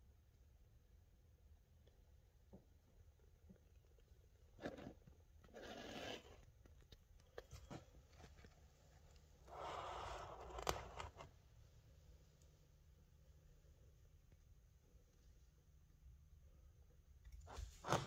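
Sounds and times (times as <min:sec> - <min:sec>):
rustling scrape: 0:04.6 - 0:06.5.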